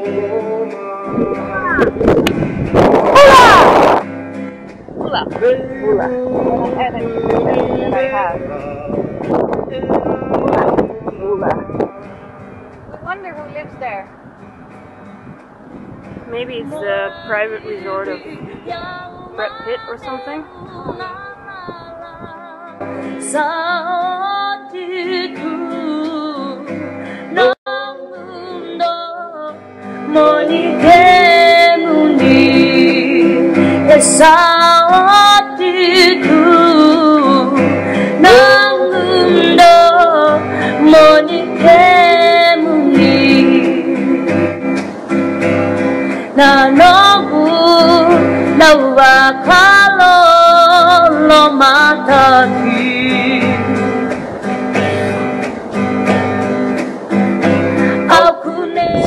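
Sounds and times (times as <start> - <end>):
guitar: 0.0 - 59.0
woman singing: 16.4 - 44.2, 46.3 - 53.8, 58.1 - 59.0.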